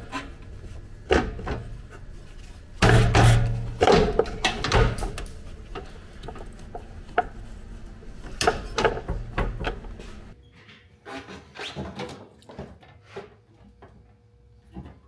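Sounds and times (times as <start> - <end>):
low steady hum: 0.0 - 10.4.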